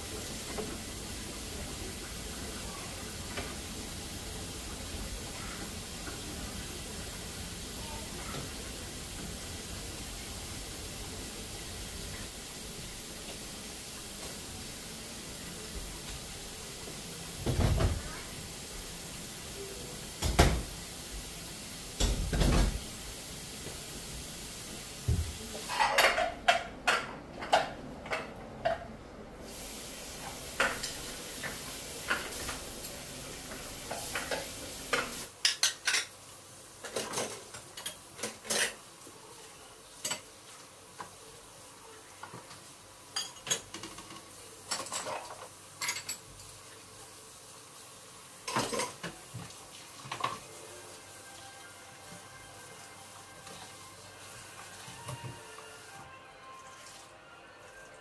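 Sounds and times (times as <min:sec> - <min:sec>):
steady hiss: 0:00.0 - 0:25.8, 0:29.4 - 0:56.1
plates and cutlery clinking: 0:25.2 - 0:28.9, 0:30.5 - 0:36.2, 0:36.8 - 0:38.9, 0:43.1 - 0:46.6, 0:48.4 - 0:49.2.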